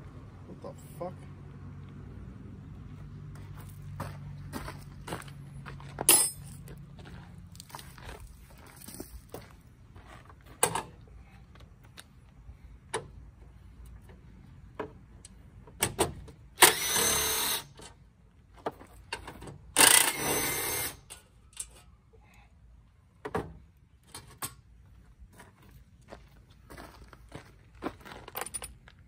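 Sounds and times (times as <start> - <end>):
metallic clinks and knocks of tools: 6.0 - 6.8, 28.3 - 28.9.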